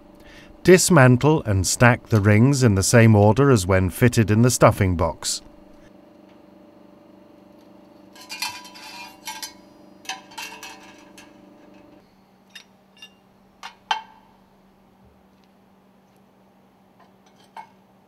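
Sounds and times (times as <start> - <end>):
steady low hum: 0.0 - 18.0
metal rings clinking and scraping: 8.1 - 12.0.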